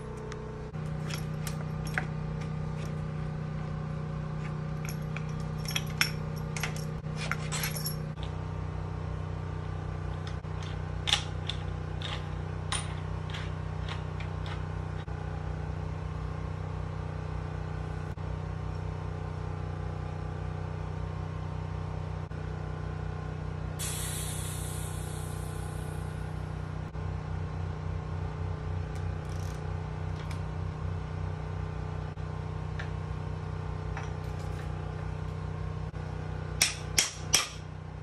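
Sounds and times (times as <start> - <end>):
steady low hum: 0.0 - 38.0
metallic clicks and clinks: 0.9 - 3.0, 4.8 - 8.4
air hissing from valve: 23.8 - 26.2.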